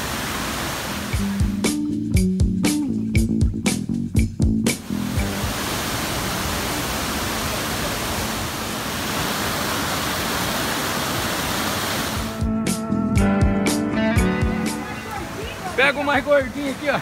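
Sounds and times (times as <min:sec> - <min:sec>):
stream rushing over rocks: 0:00.0 - 0:01.6, 0:04.8 - 0:12.4, 0:14.4 - 0:17.0
background music with drum beat: 0:01.1 - 0:05.3, 0:12.2 - 0:15.0.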